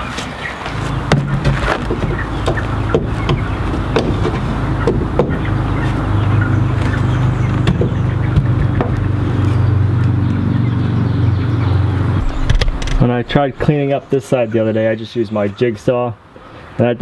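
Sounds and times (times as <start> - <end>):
engine hum: 0.0 - 14.6
knocks and taps on metal door: 1.1 - 5.5.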